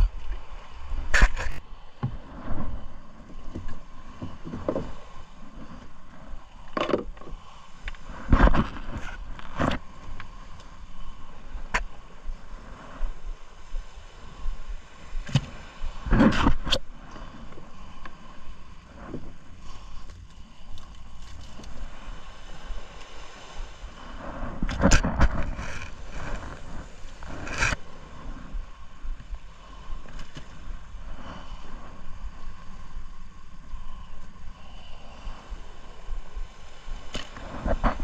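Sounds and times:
steady low rumble: 0.0 - 38.0
knocks and scrapes on wooden boat: 1.1 - 6.0, 6.6 - 9.9, 15.2 - 16.9, 24.3 - 27.8.

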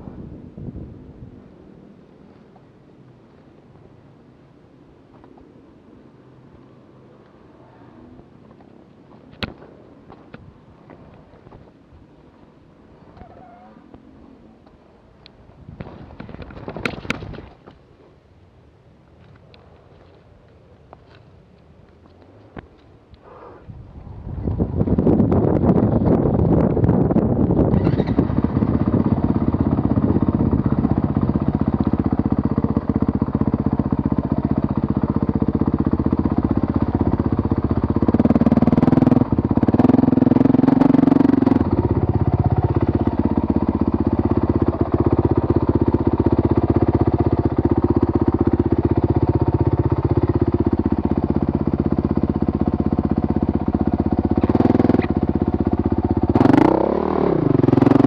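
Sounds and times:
dirt bike engine revving: 37.7 - 43.3, 56.2 - 58.0.

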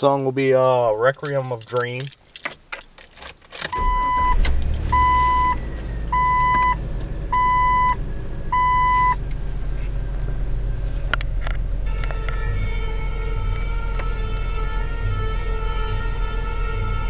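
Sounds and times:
car engine starting and running: 1.0 - 17.0
dashboard warning chime: 3.7 - 9.2.

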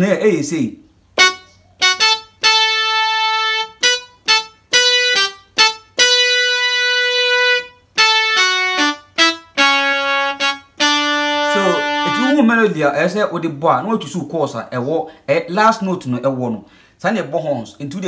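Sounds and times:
keyboard slow melody: 1.2 - 12.5.

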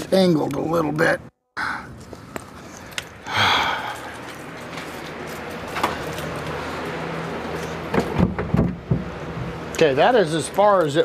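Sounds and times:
steady low hum: 0.0 - 10.8.

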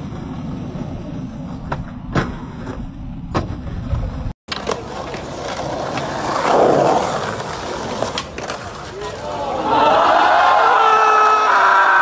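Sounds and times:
skateboard wheels rolling on concrete: 0.0 - 12.0
skateboard clacking on ground: 1.6 - 9.3.

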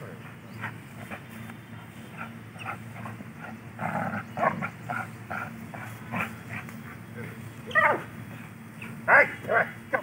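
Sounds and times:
dog growling: 2.6 - 6.7.

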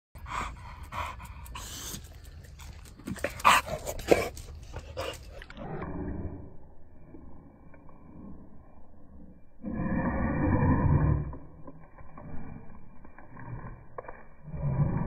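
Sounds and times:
dog panting: 0.2 - 5.9.

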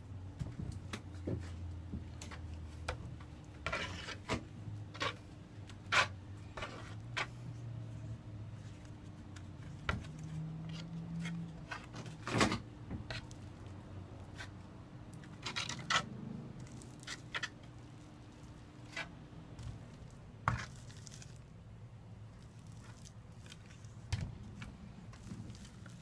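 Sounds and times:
trowel scraping and tapping: 3.6 - 5.2.

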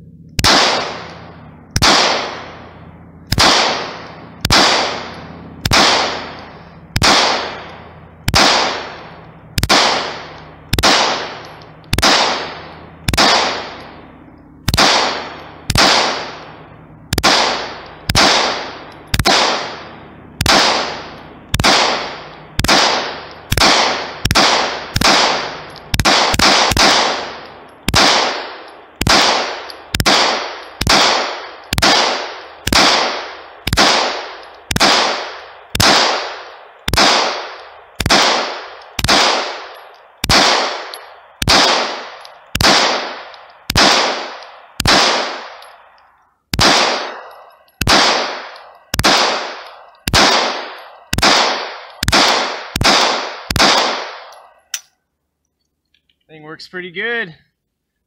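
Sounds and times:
pistol firing single shots: 0.4 - 54.8.

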